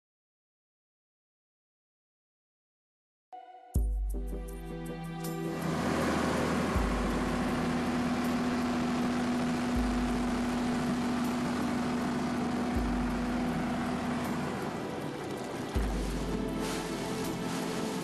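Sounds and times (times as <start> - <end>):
background music with deep bass: 3.7 - 18.0
boat engine running: 5.2 - 18.0
wind and water rushing: 5.6 - 8.2, 12.1 - 18.0.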